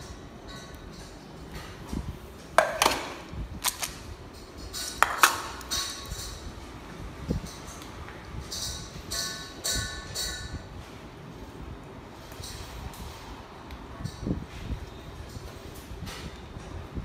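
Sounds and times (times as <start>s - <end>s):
metal bowls clinking on tiles: 4.4s - 6.5s, 8.4s - 10.6s.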